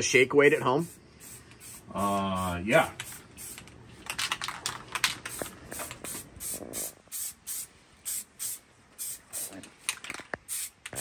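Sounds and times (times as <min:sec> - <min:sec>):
aerosol spray can hissing: 0:00.8 - 0:02.1, 0:03.0 - 0:03.7, 0:05.3 - 0:09.6, 0:10.5 - 0:11.0.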